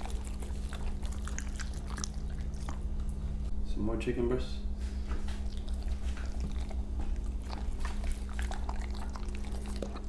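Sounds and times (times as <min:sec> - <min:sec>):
dogs chewing meat: 0:00.0 - 0:03.4, 0:05.0 - 0:10.0
steady low hum: 0:00.0 - 0:10.0.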